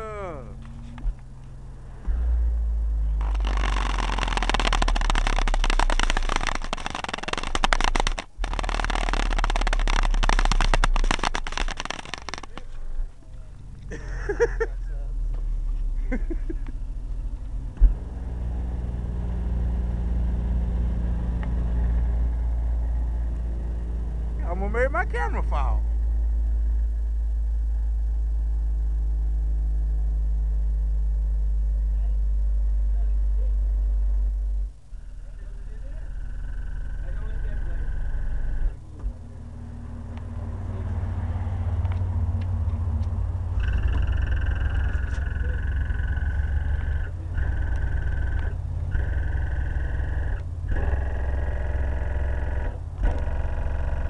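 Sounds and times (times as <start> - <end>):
car panels buzzing: 0.0 - 14.7, 42.7 - 54.0
crackling microphone overload: 0.0 - 54.0
deep loud subwoofer bass: 0.0 - 54.0.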